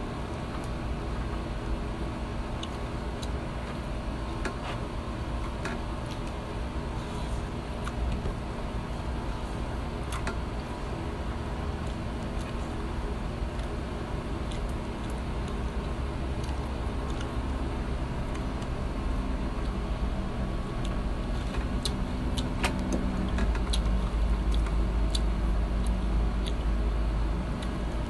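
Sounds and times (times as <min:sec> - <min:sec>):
low background rumble: 0:00.0 - 0:28.0
man chewing and lip-smacking: 0:02.5 - 0:08.6, 0:11.7 - 0:18.7, 0:19.5 - 0:28.0.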